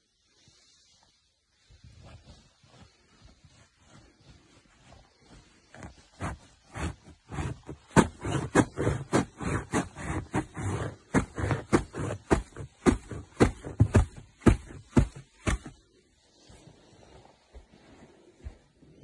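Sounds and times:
feet thudding on mattress: 0:04.5 - 0:15.9.

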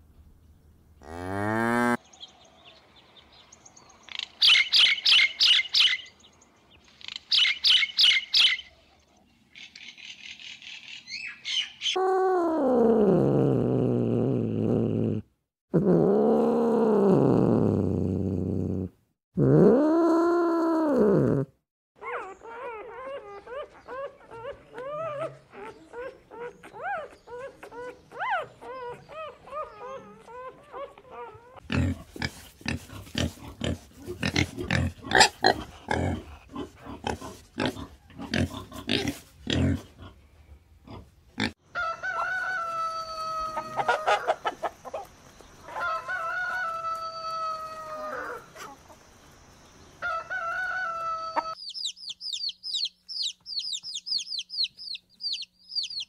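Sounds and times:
pigs grunting and squealing: 0:24.0 - 0:40.2, 0:40.8 - 0:41.6
chicks peeping: 0:50.4 - 0:56.0.

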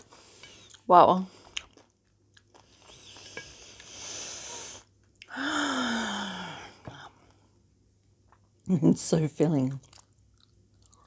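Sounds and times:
woman breathing out: 0:03.9 - 0:07.1
woman sighing: 0:05.3 - 0:07.1.

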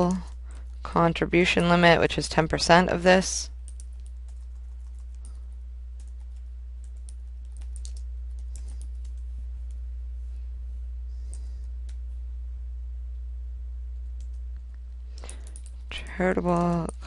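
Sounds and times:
low hum: 0:00.0 - 0:17.0
keyboard keystrokes: 0:06.0 - 0:09.2.

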